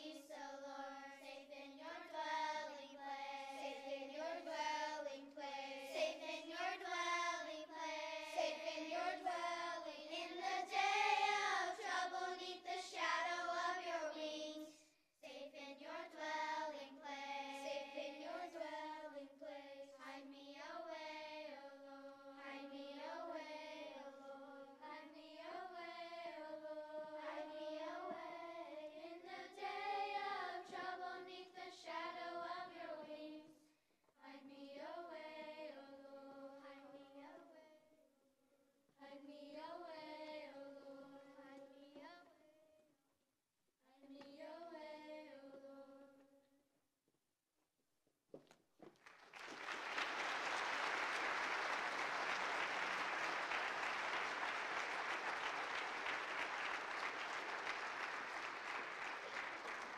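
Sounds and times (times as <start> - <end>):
children's choir singing: 0.0 - 33.5, 49.8 - 59.9.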